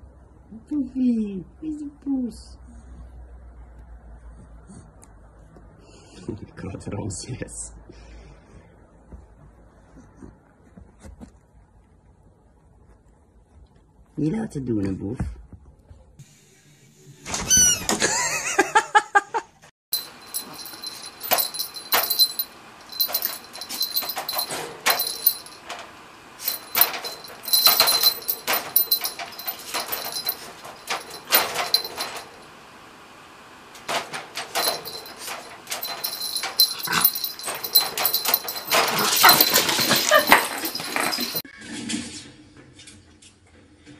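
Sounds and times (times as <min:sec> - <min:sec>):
sharp clicks and rattles: 0:20.0 - 0:32.6, 0:33.7 - 0:41.4.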